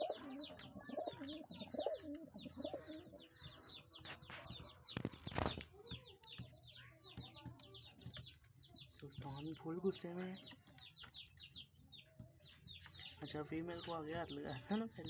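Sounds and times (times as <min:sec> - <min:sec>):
pigeon cooing: 0:00.0 - 0:03.6
small birds chirping: 0:00.0 - 0:15.0.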